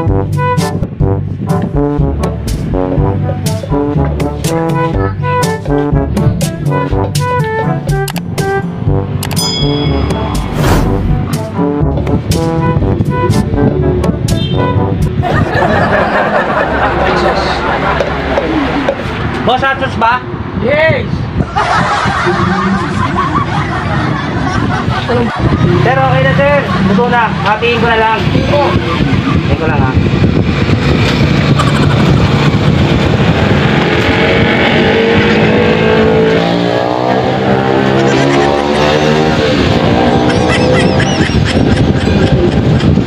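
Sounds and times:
music with rising notes: 0.0 - 16.2, 30.4 - 41.4
loud vehicle engine: 5.6 - 13.5, 25.0 - 43.0
people laughing: 15.2 - 19.1, 21.4 - 27.5, 28.4 - 30.0, 37.9 - 39.2, 39.9 - 43.0
crowd babble: 15.4 - 19.2.

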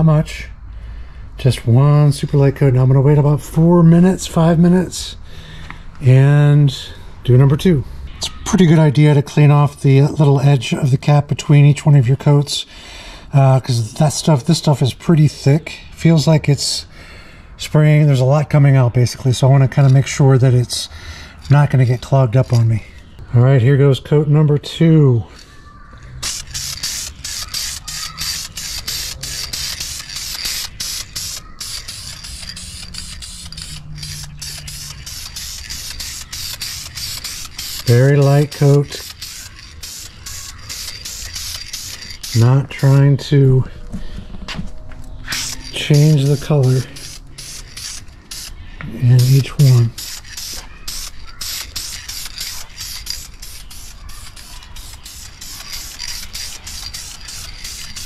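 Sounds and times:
spray can hissing in bursts: 26.1 - 43.2, 45.2 - 58.0.

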